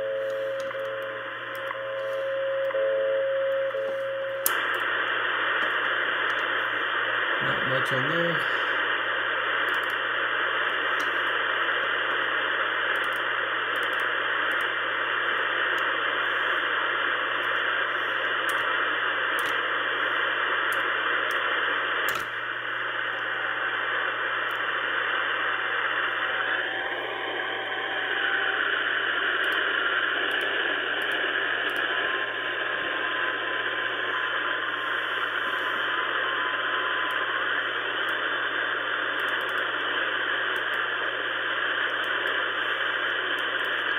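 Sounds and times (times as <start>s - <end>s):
low hum: 0.0s - 7.6s
radio band noise and hiss: 0.0s - 43.9s
radio click: 0.0s - 43.9s.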